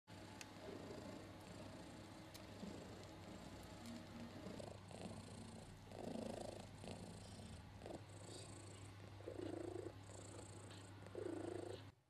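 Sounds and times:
cat purring: 0.1 - 12.0.

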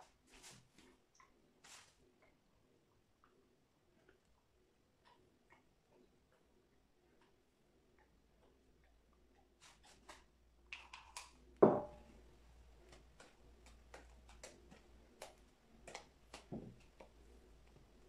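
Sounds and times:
plastic spatula tapping a bowl: 11.6 - 12.0.

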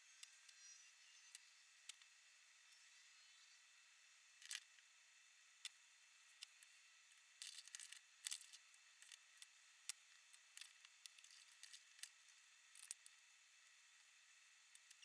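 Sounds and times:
small plastic parts clicking: 0.2 - 2.1, 4.4 - 4.8, 5.6 - 14.1, 14.7 - 15.0.

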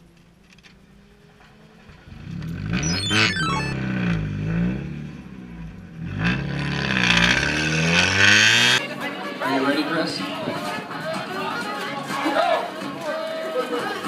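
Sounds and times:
car engine revving: 0.9 - 8.8
falling electronic beeps: 2.7 - 3.8.

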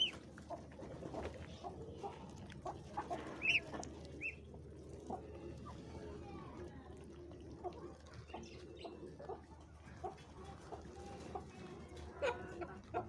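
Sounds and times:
chicken calls: 0.0 - 4.4
chickens clucking: 0.0 - 6.3, 7.3 - 13.0.

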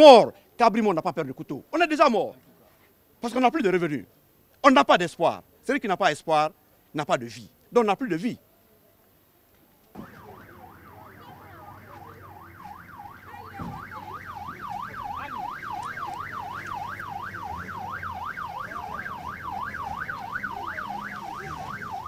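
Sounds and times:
siren yelping: 10.0 - 22.0.

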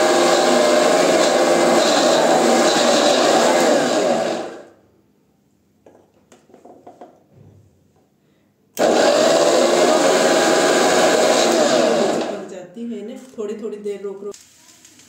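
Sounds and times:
mixer grinder grinding: 0.0 - 4.7, 8.8 - 12.5.

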